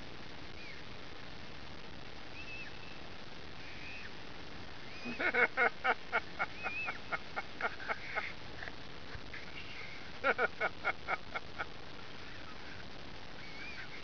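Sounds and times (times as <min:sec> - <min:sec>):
gull calling: 0:04.9 - 0:05.5, 0:06.4 - 0:07.2, 0:13.4 - 0:14.0.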